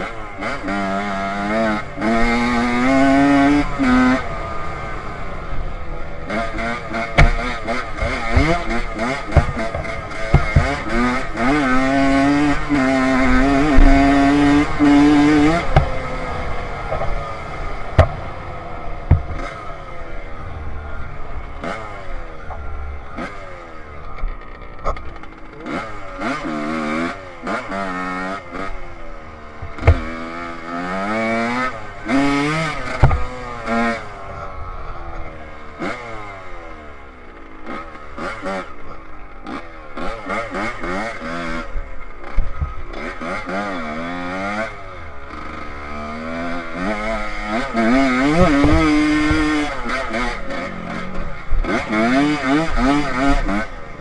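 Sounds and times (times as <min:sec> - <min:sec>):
dirt bike engine revving: 0:00.0 - 0:54.0
bike knocking over bumps: 0:07.1 - 0:10.9, 0:15.6 - 0:15.9, 0:19.0 - 0:19.5, 0:29.6 - 0:30.1, 0:32.9 - 0:33.3, 0:48.2 - 0:49.5.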